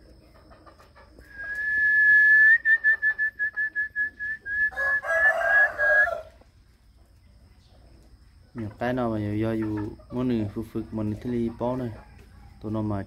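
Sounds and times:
high whistle trilling: 1.3 - 6.2.

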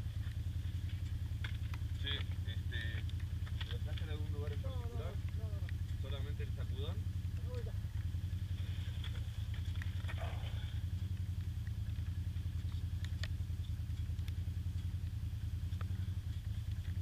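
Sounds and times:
quad bike engine idling: 0.0 - 17.0
faint clicks: 8.9 - 17.0.

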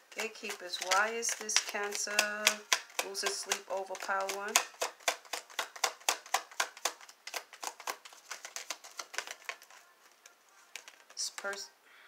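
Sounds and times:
cards being shuffled: 0.0 - 11.6.

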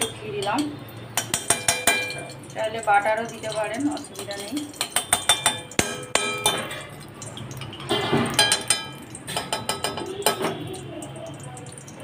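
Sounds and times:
metal spoon clinking on metal pan: 0.0 - 11.3.

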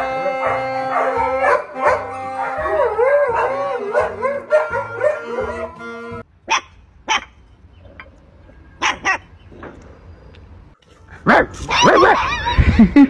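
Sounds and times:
music: 0.0 - 6.3
dog howling: 0.4 - 5.8
puppy yips: 6.5 - 7.4, 8.8 - 9.3, 11.5 - 12.6.

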